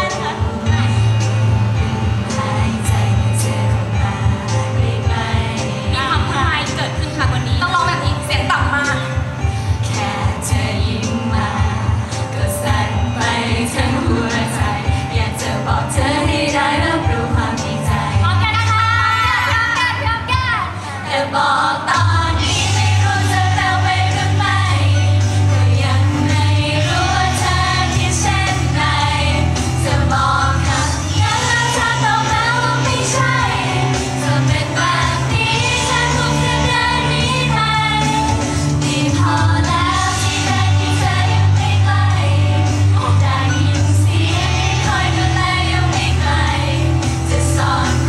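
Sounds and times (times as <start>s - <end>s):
music with heavy bass: 0.0s - 20.2s, 22.0s - 48.0s
girl group singing pop: 0.0s - 48.0s.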